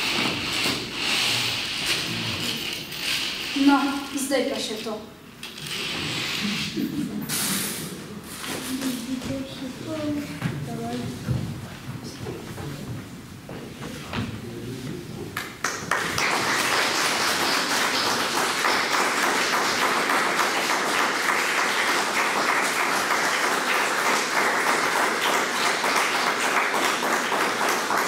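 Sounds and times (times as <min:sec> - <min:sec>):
audience applauding: 0:15.4 - 0:28.0.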